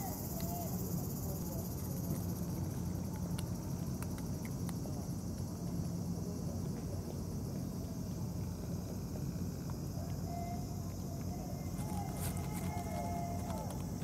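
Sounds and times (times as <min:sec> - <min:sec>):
insects trilling: 0:00.0 - 0:14.0
low outdoor rumble: 0:00.0 - 0:14.0
cats crunching food: 0:01.4 - 0:14.0.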